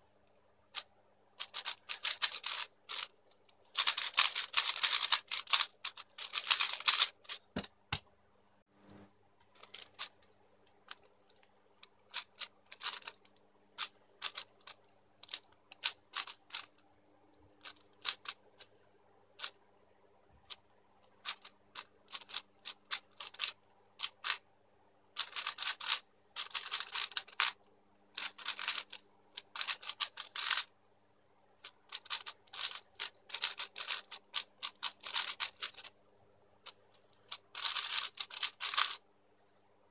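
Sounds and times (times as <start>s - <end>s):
faint steady hum: 0.0s - 39.9s
plastic puzzle cube clicking: 0.8s - 8.0s, 9.6s - 10.2s, 10.9s - 16.8s, 17.6s - 18.7s, 21.2s - 24.4s, 25.2s - 27.6s, 28.2s - 30.7s, 31.6s - 35.9s, 37.0s - 39.0s.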